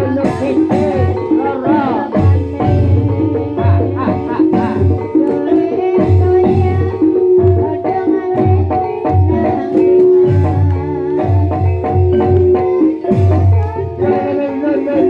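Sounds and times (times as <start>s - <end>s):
held instrument tones: 0.0s - 15.0s
wavering sung vocal: 0.0s - 15.0s
deep drum strokes: 2.2s - 5.1s.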